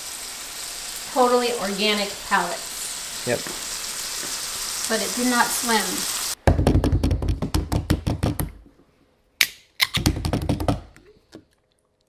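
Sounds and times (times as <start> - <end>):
rapid sharp clicks and taps: 6.9 - 8.6.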